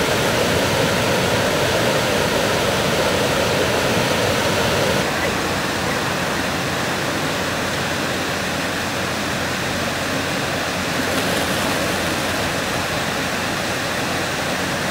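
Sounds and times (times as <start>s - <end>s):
water rushing over pebbles: 0.0s - 14.9s
fish splashing: 10.8s - 13.2s.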